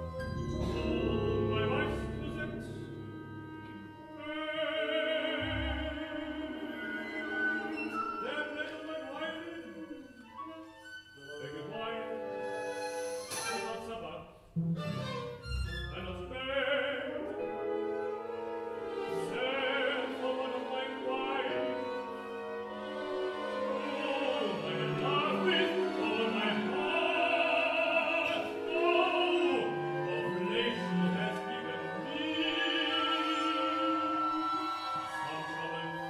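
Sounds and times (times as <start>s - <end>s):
sustained orchestral strings: 0.0s - 36.0s
operatic voice singing: 0.6s - 3.1s, 3.9s - 10.6s, 15.9s - 17.6s, 19.0s - 22.1s, 23.4s - 36.0s.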